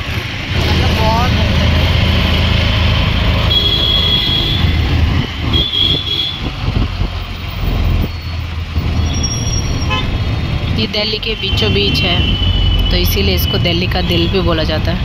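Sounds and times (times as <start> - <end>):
auto-rickshaw engine running: 0.0 - 15.0
high-pitched horn toots: 3.4 - 4.8, 5.4 - 6.5, 11.2 - 14.5.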